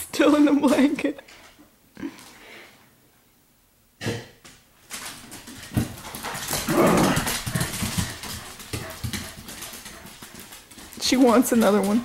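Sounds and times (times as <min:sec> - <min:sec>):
dogs vocalizing: 0:06.0 - 0:11.0.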